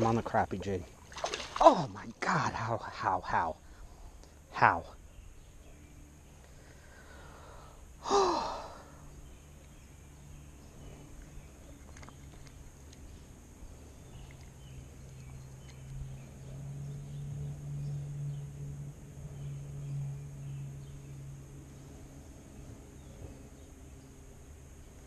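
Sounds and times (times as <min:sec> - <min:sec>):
faint steady low hum: 0:00.0 - 0:25.0
man's sigh-like exclamation: 0:08.0 - 0:08.9.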